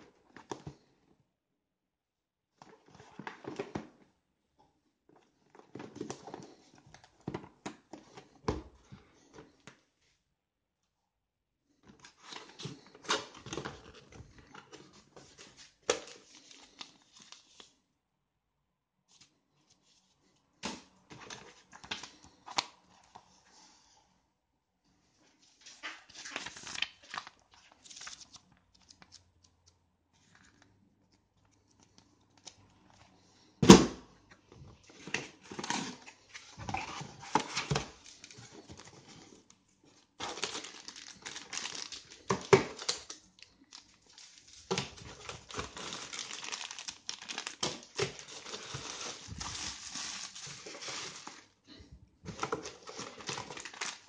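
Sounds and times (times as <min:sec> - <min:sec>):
packaging crinkling and tearing: 0:26.1 - 0:29.4, 0:40.2 - 0:51.5, 0:52.3 - 0:54.0.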